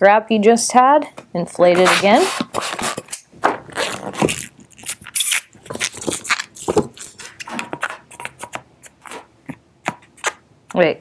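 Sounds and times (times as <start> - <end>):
balloon rubbing and squeaking: 1.8 - 9.3.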